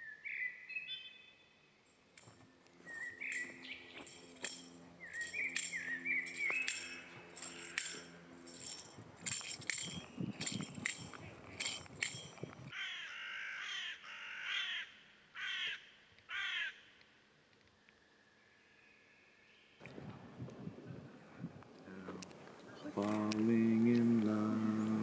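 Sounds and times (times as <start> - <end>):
crow cawing: 7.5 - 8.1, 12.7 - 16.9.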